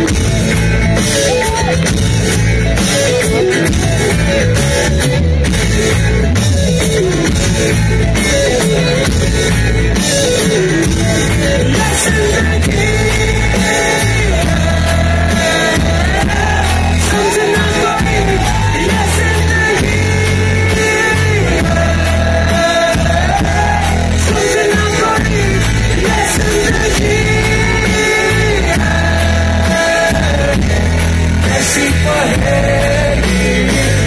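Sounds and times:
live rock band playing: 0.0s - 34.0s
person singing: 11.4s - 34.0s.

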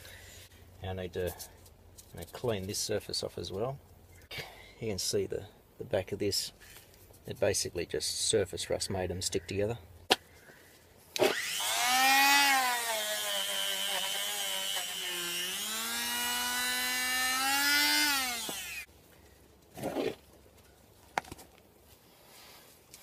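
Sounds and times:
rotary power tool whine: 11.2s - 18.9s.

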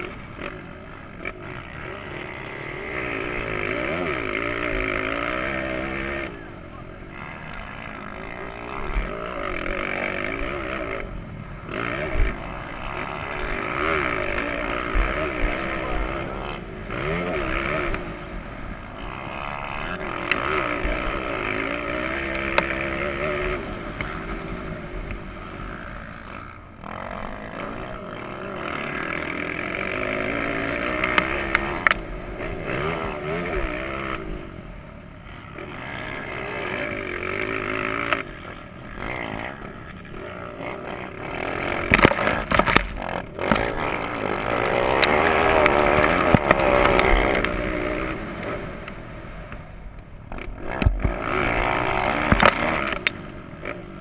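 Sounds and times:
motocross bike engine revving: 0.0s - 54.0s
sharp knocks and clatter: 41.8s - 47.5s, 52.2s - 53.3s.

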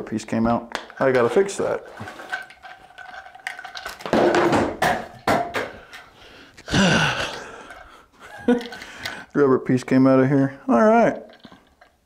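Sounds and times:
metal shower hose rattling: 0.9s - 4.5s.

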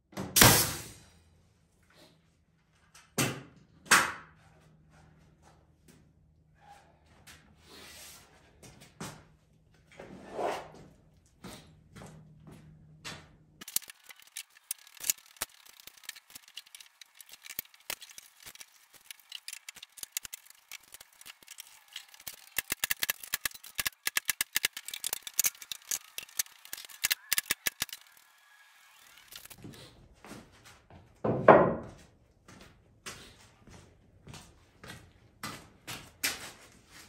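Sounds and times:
metallic clicking and rattling: 13.6s - 28.2s.

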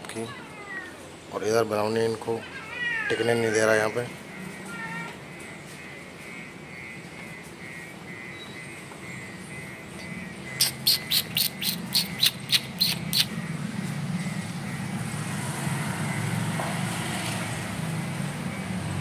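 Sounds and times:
bird chirping: 8.2s - 14.8s.

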